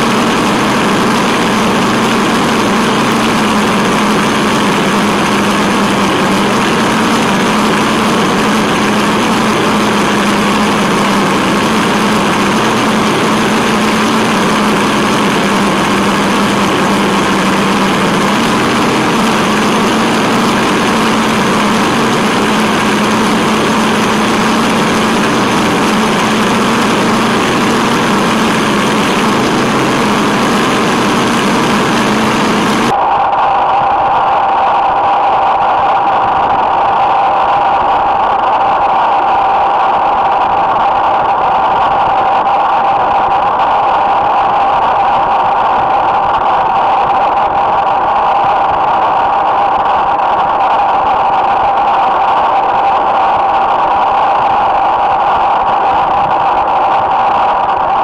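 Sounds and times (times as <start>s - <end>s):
electric motor whine: 0.0s - 33.0s.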